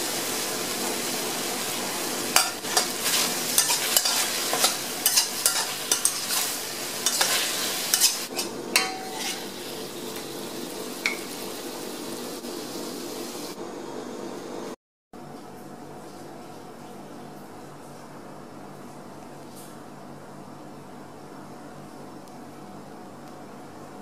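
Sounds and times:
food sizzling: 0.0 - 14.7
metal spatula scraping wok: 2.4 - 9.7.

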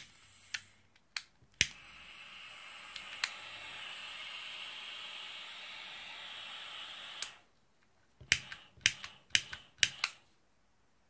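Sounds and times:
soldering iron gas hiss: 0.0 - 0.9, 1.6 - 7.5, 8.3 - 10.2.

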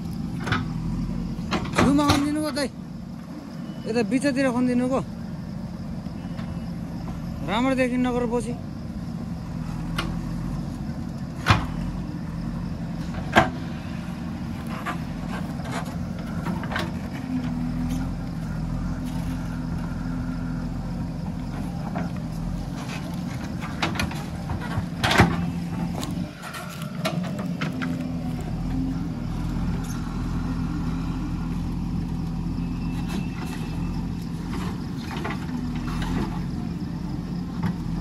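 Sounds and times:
diesel engine running: 0.0 - 38.0
sharp knocks of backhoe digging: 11.4 - 11.8, 13.1 - 13.7, 21.5 - 28.0.

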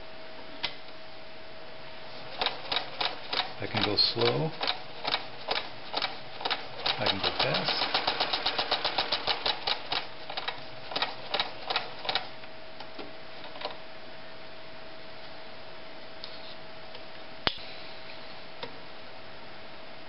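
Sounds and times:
faint steady hum: 0.0 - 20.0
sewing machine stitching: 2.2 - 12.3.

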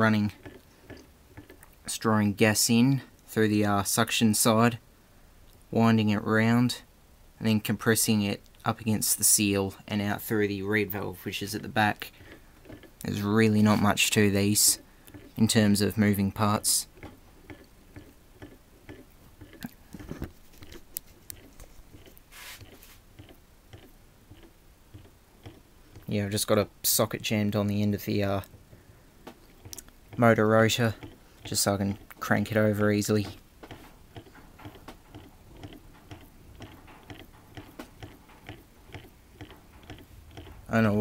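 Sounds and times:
compressor pump clicks and knocks: 0.4 - 1.8, 12.1 - 13.1, 14.6 - 15.4, 16.9 - 26.1, 28.4 - 32.2, 33.2 - 40.7
short hiss: 22.3 - 23.0.

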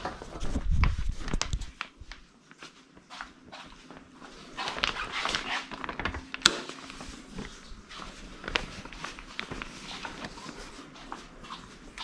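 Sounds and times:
fabric hamper rustling: 0.0 - 12.0
footsteps: 6.5 - 12.0.

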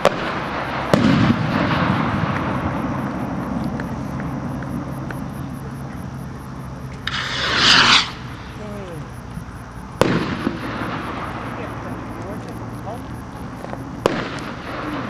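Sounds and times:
firework explosion: 0.0 - 15.0
skyrocket launching hiss: 7.0 - 9.0.

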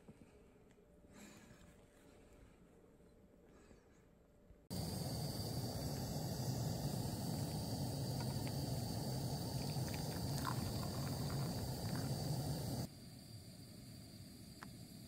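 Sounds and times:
camping stove roaring: 4.7 - 12.9
water poured into metal mug: 7.3 - 12.8.

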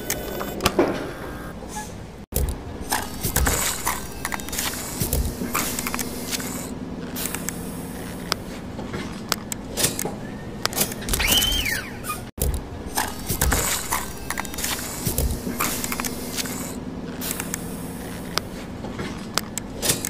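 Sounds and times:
mechanical clicks and clunks: 0.0 - 1.6, 2.3 - 20.0
short squeal: 1.0 - 2.0, 10.2 - 12.3.

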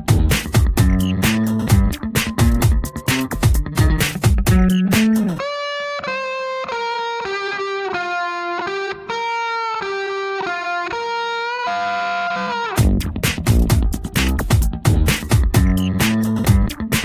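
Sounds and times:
music beat: 0.0 - 7.8, 12.6 - 17.0.

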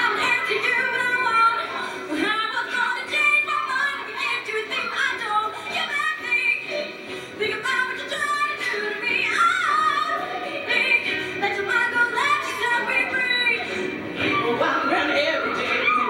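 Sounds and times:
backing music: 0.0 - 16.0
woman singing lead into microphone: 0.0 - 16.0
choir singing: 14.2 - 16.0.

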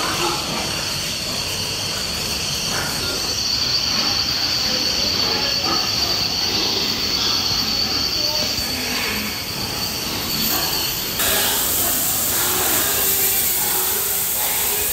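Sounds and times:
steady high-pitched whine: 0.0 - 14.9
constant hiss: 11.0 - 14.9.

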